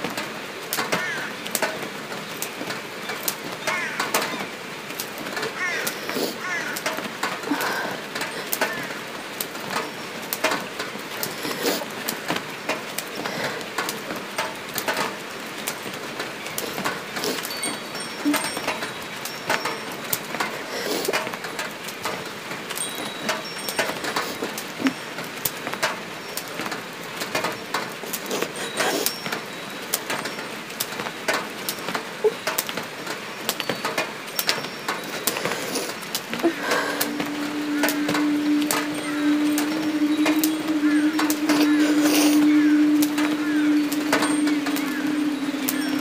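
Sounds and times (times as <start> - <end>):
irregular clicks and crackles: 0.0 - 46.0
steady hiss: 0.0 - 46.0
faint hiss: 33.5 - 46.0.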